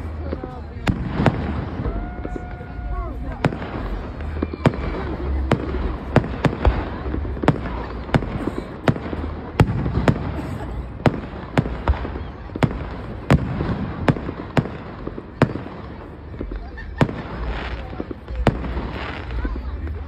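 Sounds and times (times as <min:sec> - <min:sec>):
fireworks bursting: 0:00.0 - 0:20.0.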